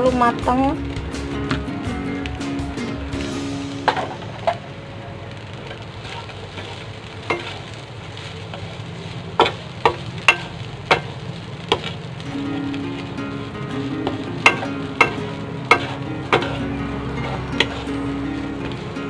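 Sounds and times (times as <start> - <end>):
food sizzling in a pan: 0.0 - 19.0
spatula stirring food: 5.7 - 19.0
spatula knocking on pan: 14.4 - 16.6.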